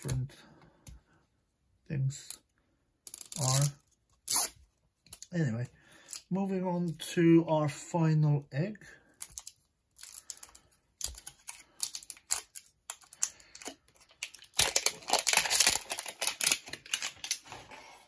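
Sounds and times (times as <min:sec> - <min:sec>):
foil wrapper crinkling and tearing: 0:11.1 - 0:17.8.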